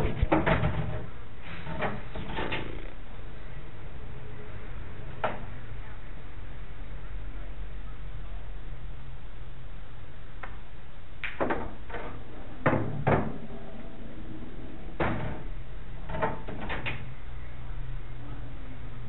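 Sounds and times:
pool balls clacking: 0:00.0 - 0:03.0, 0:11.2 - 0:17.2
background room noise: 0:00.0 - 0:19.0
steady low hum: 0:00.0 - 0:19.0.

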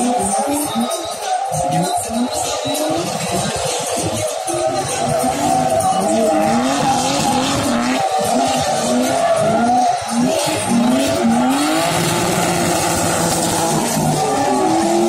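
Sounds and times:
car engine revving hard: 0:00.0 - 0:15.0
tyres skidding and squealing: 0:00.0 - 0:15.0.

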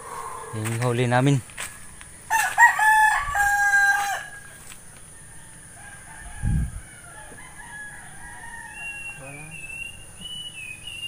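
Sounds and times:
rooster crowing: 0:00.0 - 0:00.8, 0:02.3 - 0:09.5
distant roosters crowing: 0:00.0 - 0:11.0.

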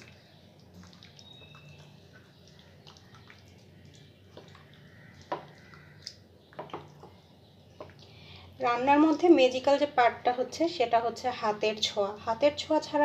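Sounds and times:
hand squishing chicken in marinade: 0:00.0 - 0:08.0.

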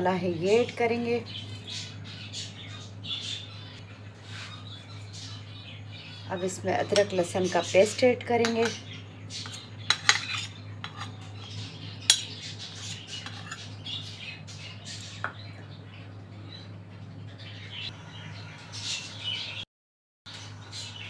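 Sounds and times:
low steady hum: 0:00.0 - 0:19.6
spoon clinking against bowl and pan: 0:09.9 - 0:11.2.

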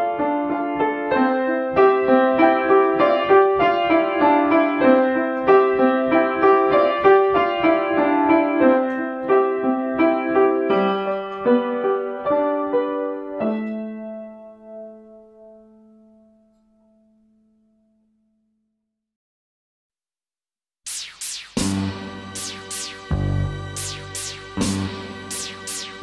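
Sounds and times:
solo piano waltz: 0:00.0 - 0:17.1.

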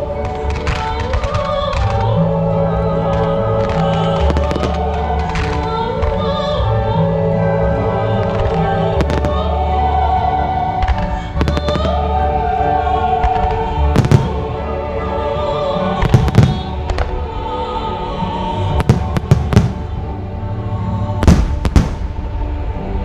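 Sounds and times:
music: 0:00.0 - 0:23.0
fireworks bangs: 0:21.2 - 0:22.2.

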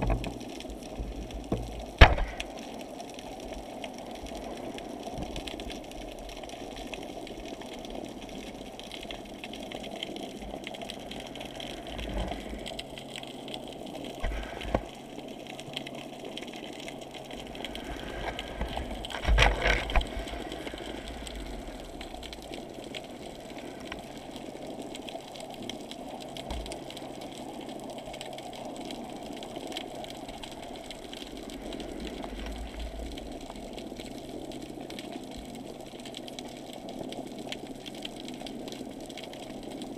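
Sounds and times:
muffled underwater rush: 0:00.0 - 0:35.6.

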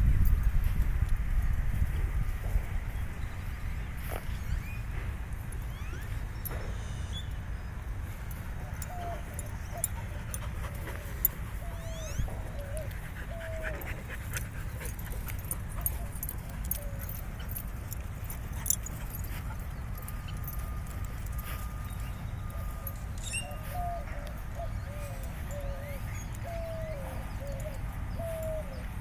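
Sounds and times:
dog whimpering: 0:08.8 - 0:14.2.

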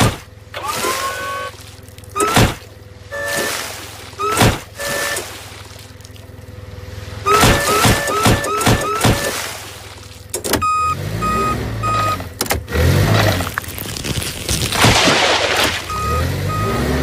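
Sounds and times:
forklift engine hum: 0:00.0 - 0:17.0
loud impacts into flesh: 0:13.4 - 0:15.9.

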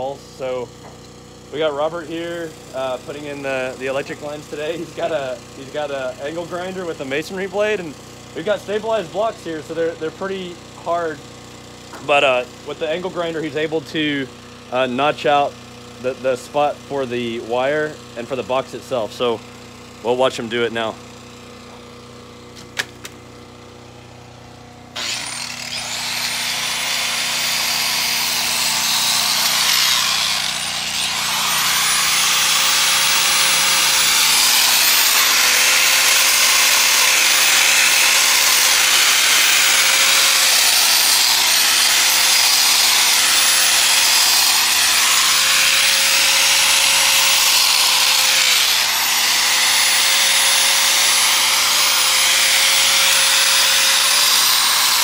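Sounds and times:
angle grinder cutting block: 0:25.0 - 0:55.0.

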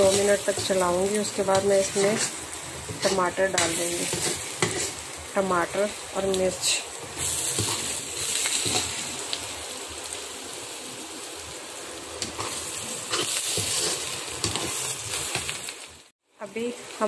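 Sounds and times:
metal spoon scraping a pan: 0:00.0 - 0:05.1, 0:07.2 - 0:09.0, 0:12.2 - 0:15.5
onions sizzling in a pan: 0:00.0 - 0:17.0.

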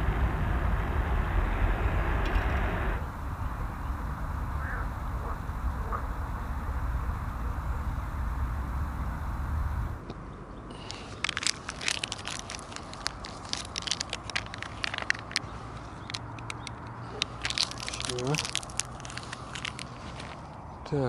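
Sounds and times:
low rumble: 0:00.0 - 0:10.0
plastic sachet crinkling and tearing: 0:10.8 - 0:16.6, 0:17.2 - 0:20.4.

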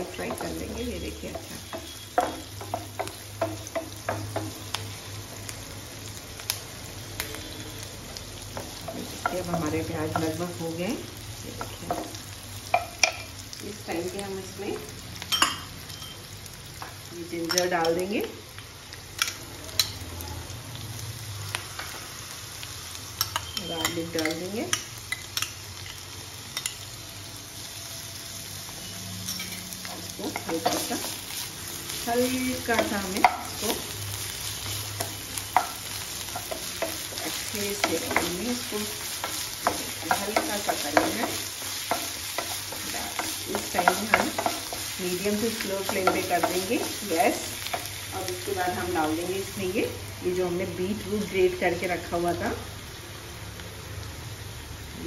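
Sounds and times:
onions frying in oil: 0:00.0 - 0:55.0
spatula tapping and scraping pan: 0:01.3 - 0:04.8, 0:29.4 - 0:31.2, 0:32.6 - 0:33.8, 0:34.9 - 0:48.0
metal spoon clicking on pan: 0:23.2 - 0:26.0.

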